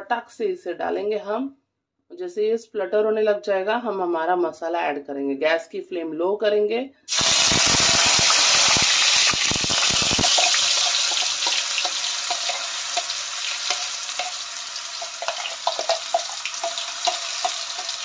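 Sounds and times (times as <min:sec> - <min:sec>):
leaves sizzling in hot oil: 0:07.1 - 0:18.0
spoon scraping steel jar: 0:10.2 - 0:18.0.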